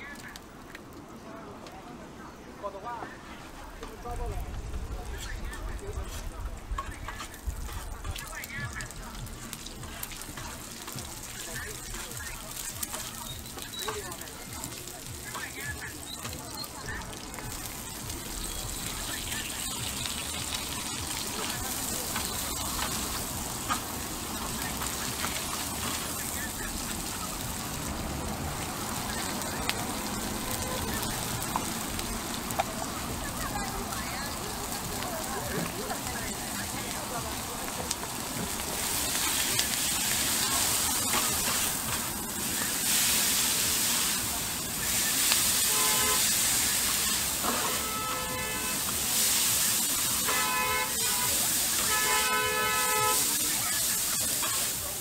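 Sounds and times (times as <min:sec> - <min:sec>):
vegetables sizzling on a griddle: 0:02.8 - 0:55.0
short horn-like tones: 0:45.5 - 0:46.5, 0:47.4 - 0:48.9, 0:50.2 - 0:53.3.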